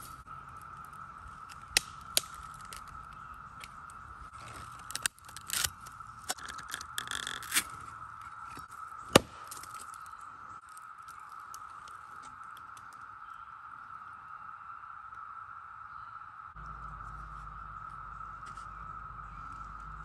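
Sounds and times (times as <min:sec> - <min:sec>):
machete scraping on bamboo: 0:04.3 - 0:09.7
high-pitched hum: 0:15.9 - 0:20.0.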